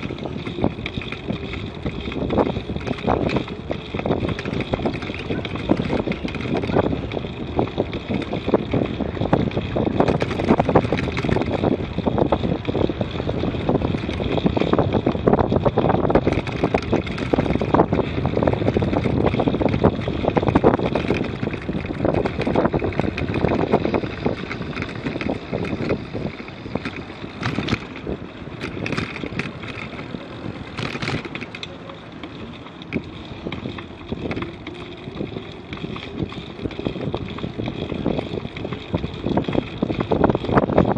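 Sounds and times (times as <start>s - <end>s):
bicycle tyre noise on path: 0.0s - 40.9s
sharp rattles: 0.0s - 40.9s
wind noise on microphone: 0.0s - 40.9s.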